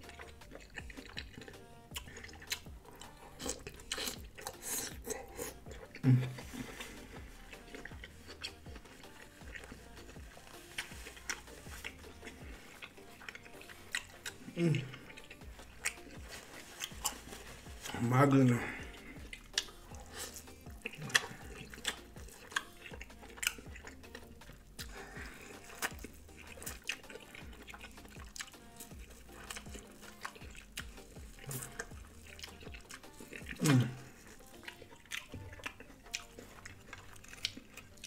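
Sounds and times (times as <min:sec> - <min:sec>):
wet chewing and lip smacks: 0:00.0 - 0:38.0
person humming: 0:04.5 - 0:16.0, 0:17.7 - 0:23.2, 0:31.0 - 0:34.7.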